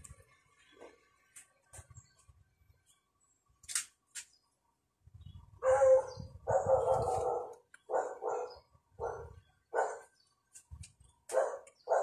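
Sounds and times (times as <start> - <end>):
dog barking: 5.6 - 10.1, 11.3 - 12.0.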